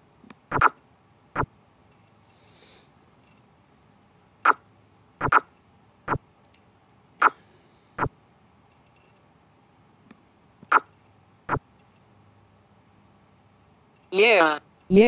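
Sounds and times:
chess program move clicks: 0.5s - 0.8s, 5.2s - 5.5s, 10.7s - 11.0s.

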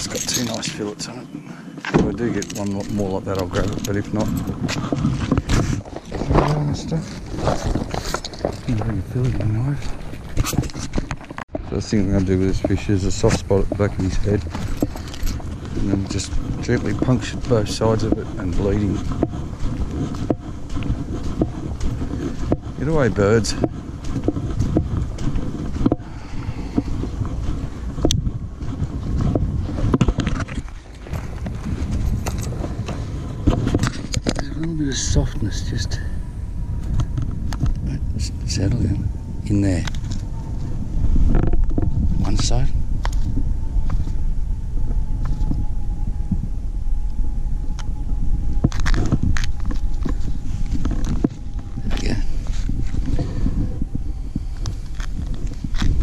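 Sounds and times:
faint steady whine: 0.0s - 56.0s
steady low rumble: 0.0s - 56.0s
wind buffeting microphone: 0.0s - 56.0s
footsteps on grass: 1.8s - 33.8s.

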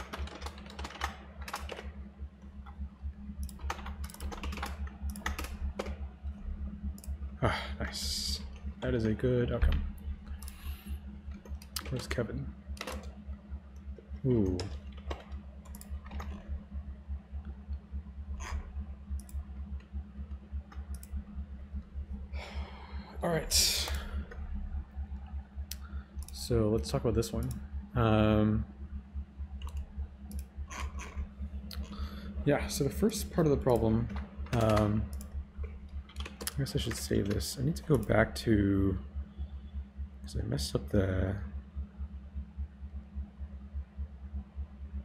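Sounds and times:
typing on computer keyboard: 0.0s - 1.9s, 3.4s - 6.0s, 33.7s - 37.4s
sharp computer clicks: 0.0s - 2.8s, 3.4s - 7.2s, 9.7s - 16.5s, 27.2s - 27.7s, 29.6s - 32.0s, 32.8s - 38.3s
low steady hum: 0.0s - 45.0s.

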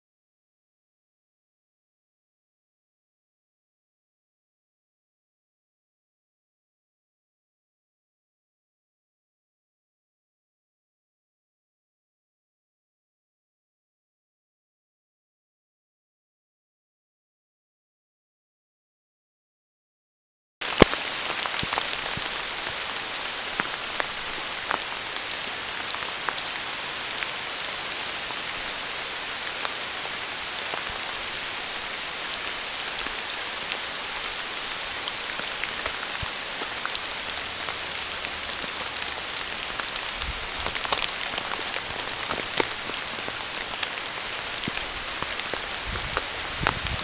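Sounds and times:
steady rain falling: 20.6s - 47.0s.

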